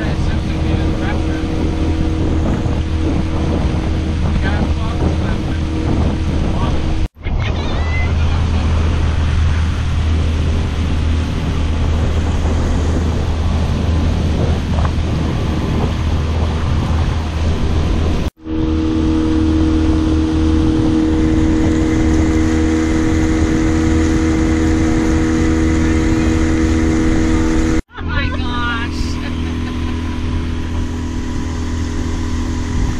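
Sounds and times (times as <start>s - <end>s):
boat motor running: 0.0s - 32.9s
rushing air and water: 0.0s - 32.9s.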